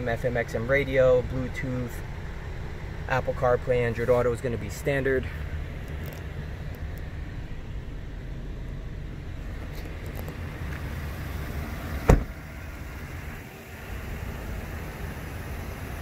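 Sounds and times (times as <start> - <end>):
low steady rumble: 0.0 - 16.0
car door slamming: 11.8 - 12.5.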